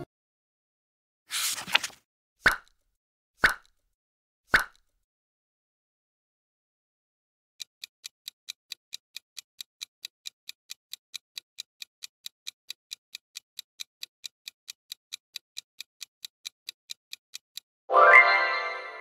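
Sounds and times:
clock ticking: 0:07.6 - 0:17.7.

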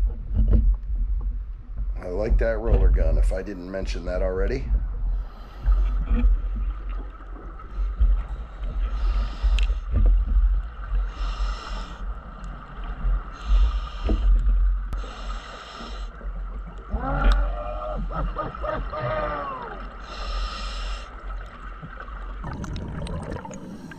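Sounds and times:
low water rumble: 0:00.0 - 0:23.9
diver breathing through regulator: 0:05.1 - 0:06.4, 0:07.8 - 0:10.1, 0:11.0 - 0:12.2, 0:13.3 - 0:16.3, 0:20.0 - 0:21.2.

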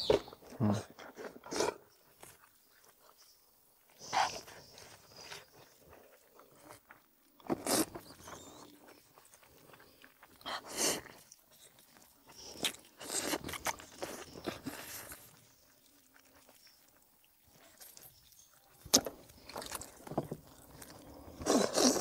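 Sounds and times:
person biting and chewing meat: 0:05.1 - 0:22.0.

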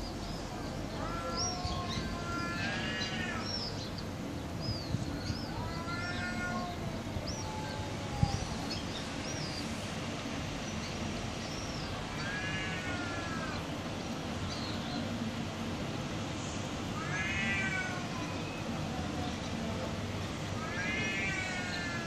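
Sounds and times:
small birds chirping: 0:00.0 - 0:15.4
cat yowling: 0:01.0 - 0:03.6, 0:05.5 - 0:08.8, 0:12.1 - 0:13.6, 0:17.0 - 0:18.6, 0:20.6 - 0:22.0.

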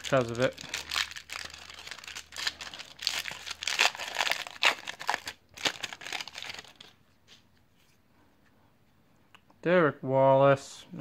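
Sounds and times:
foil wrapper crinkling and tearing: 0:00.0 - 0:07.0.

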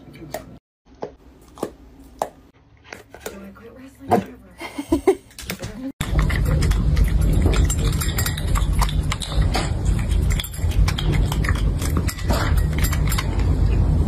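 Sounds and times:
cat chewing and lapping: 0:06.0 - 0:14.0.

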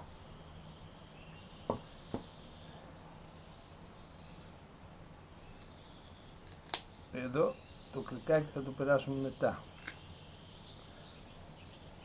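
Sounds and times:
small metal tackle clicks: 0:06.4 - 0:06.9, 0:09.8 - 0:10.0.

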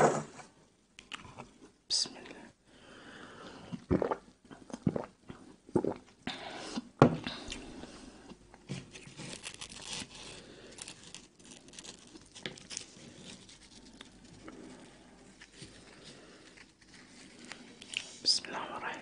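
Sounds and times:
gulping a drink: 0:03.8 - 0:06.2
bread crust crackling and tearing: 0:08.9 - 0:18.1.

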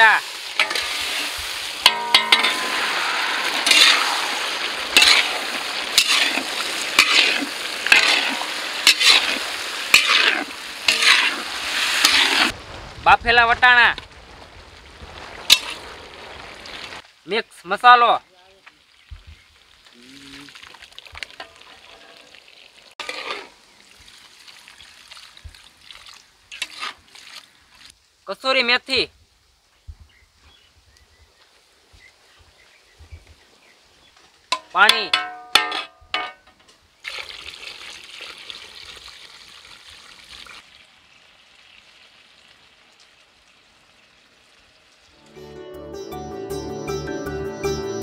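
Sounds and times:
potatoes sizzling in oil: 0:00.0 - 0:17.5, 0:18.6 - 0:25.6, 0:26.5 - 0:27.2, 0:37.0 - 0:45.2
metal ladle scraping pan: 0:00.6 - 0:12.5, 0:23.0 - 0:23.6, 0:26.6 - 0:27.0, 0:34.6 - 0:36.4
metal clink: 0:01.8 - 0:02.8
liquid pouring steadily: 0:18.9 - 0:23.0, 0:23.8 - 0:27.9, 0:37.0 - 0:45.2.

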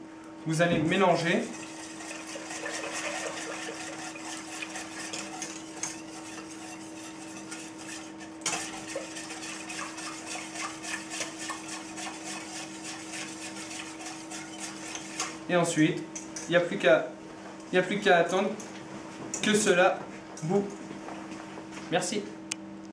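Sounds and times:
steady low hum: 0:00.0 - 0:22.9
whisk scraping in a metal saucepan: 0:01.2 - 0:15.5.

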